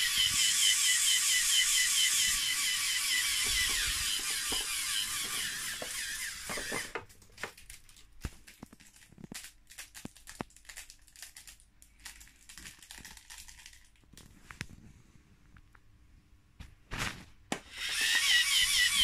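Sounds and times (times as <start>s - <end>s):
toy air compressor whirring: 0.0s - 7.1s, 17.5s - 19.0s
faint clicks and crackles: 7.0s - 14.8s.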